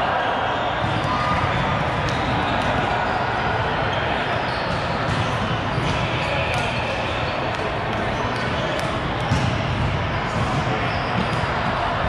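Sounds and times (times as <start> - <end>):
players' voices: 0.0 - 12.0
volleyball thudding and bouncing: 8.8 - 11.8.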